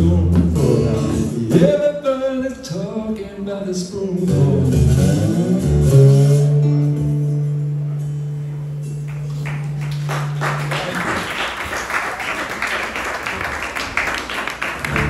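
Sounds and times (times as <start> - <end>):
acoustic guitar blues: 0.0 - 9.9
audience clapping: 9.0 - 15.0.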